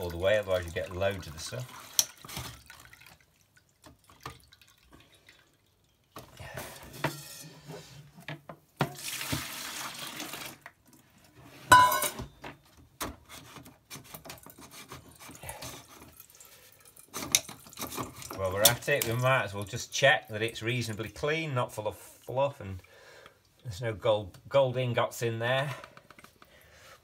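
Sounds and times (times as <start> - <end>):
water trickling into metal bowl: 0.0 - 7.4, 15.1 - 21.0
sharp metallic clink: 11.7 - 12.2.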